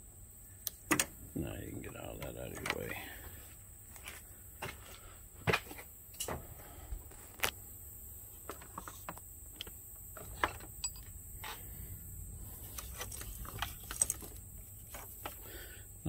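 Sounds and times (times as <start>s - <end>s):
faint low rumble: 10.1s - 16.0s
hoses and parts clicking: 12.7s - 15.4s.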